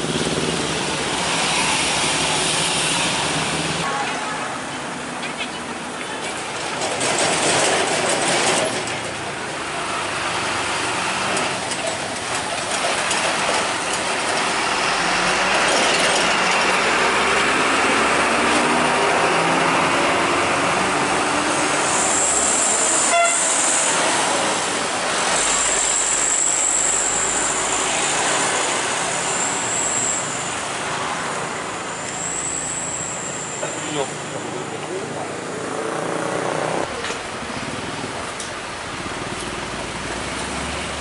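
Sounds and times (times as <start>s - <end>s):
passing traffic with high hiss: 0.0s - 41.0s
diesel trucks driving past: 4.8s - 41.0s
truck engine rising in pitch: 14.1s - 37.4s.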